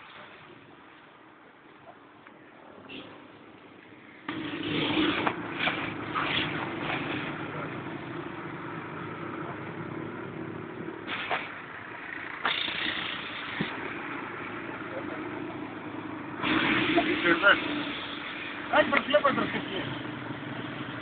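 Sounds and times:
rushes of noise: 0:03.9 - 0:21.0
auto-rickshaw engine running: 0:04.2 - 0:21.0.

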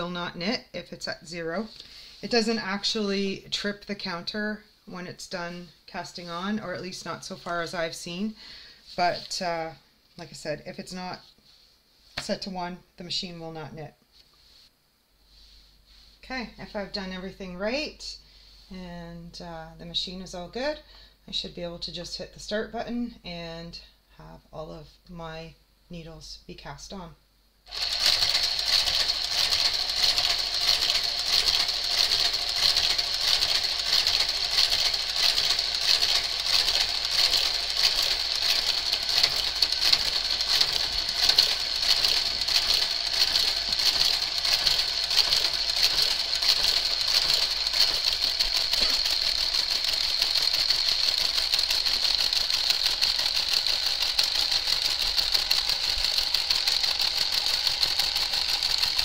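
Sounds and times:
knitting machine whining and clicking: 0:27.7 - 0:59.0.

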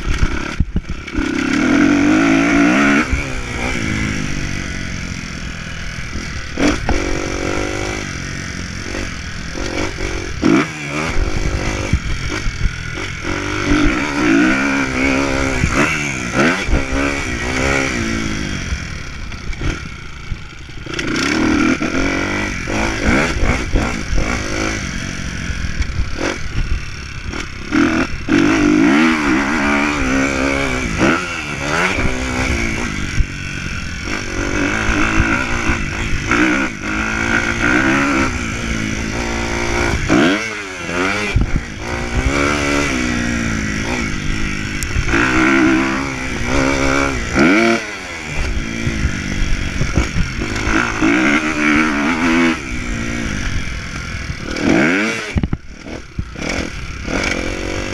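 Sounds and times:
dirt bike engine revving: 0:00.0 - 0:57.9
wind rushing across microphone: 0:41.2 - 0:47.4.

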